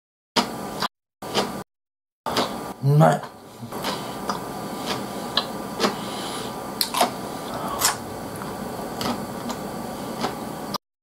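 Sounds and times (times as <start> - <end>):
person chewing food: 1.3 - 1.5, 2.3 - 2.6, 3.6 - 10.4
steady background hiss: 2.6 - 10.8
wet mouth clicks and smacks: 6.8 - 7.1.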